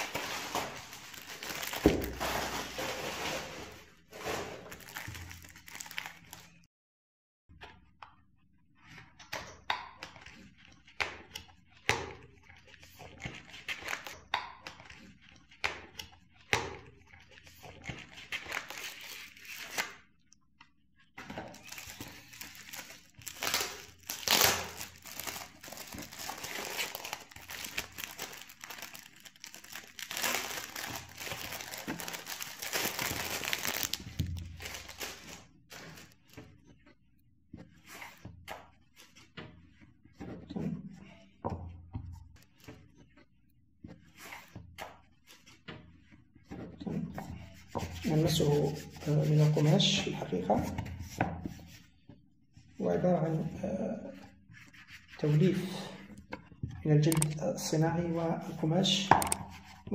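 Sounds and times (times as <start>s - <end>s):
cardboard box being opened: 0.0s - 6.0s
plastic shrink wrap crinkling and tearing: 0.0s - 6.7s, 17.9s - 20.0s, 21.5s - 36.3s.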